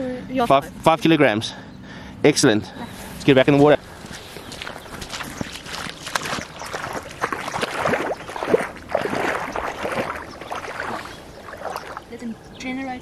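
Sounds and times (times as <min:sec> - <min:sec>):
person wading through shallow water: 0:02.9 - 0:12.5
water gurgling: 0:03.6 - 0:12.4.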